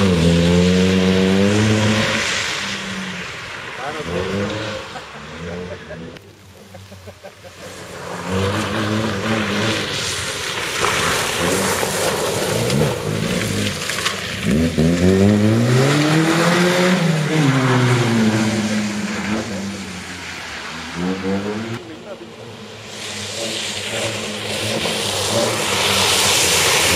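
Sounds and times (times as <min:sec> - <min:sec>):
car engine revving hard: 0:00.0 - 0:06.2, 0:07.9 - 0:22.4, 0:23.1 - 0:26.9
tyre noise on gravel: 0:06.8 - 0:16.2.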